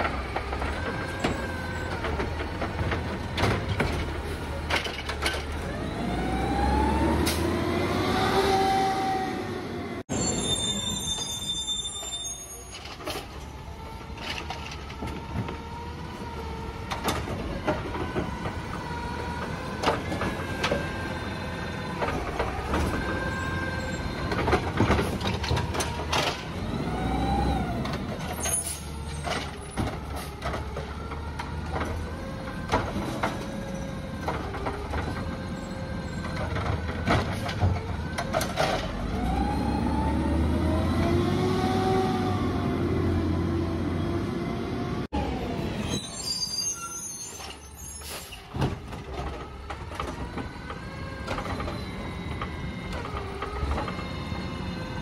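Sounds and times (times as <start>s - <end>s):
clanks of cart against truck: 0.0s - 5.8s, 10.5s - 15.8s, 16.8s - 21.1s, 21.7s - 39.3s, 47.3s - 55.0s.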